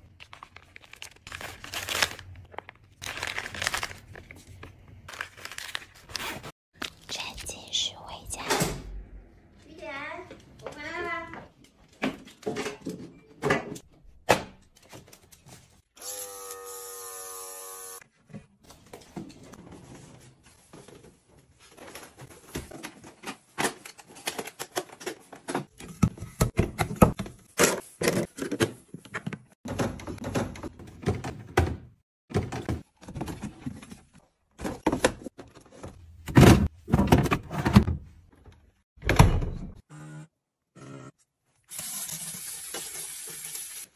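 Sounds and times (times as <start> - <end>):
objects knocking and thunking: 18.9 - 39.8.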